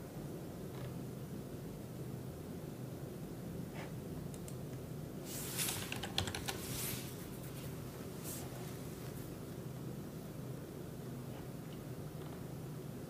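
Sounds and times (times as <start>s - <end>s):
steady low hum: 0.0s - 13.0s
keyboard typing: 5.6s - 6.7s.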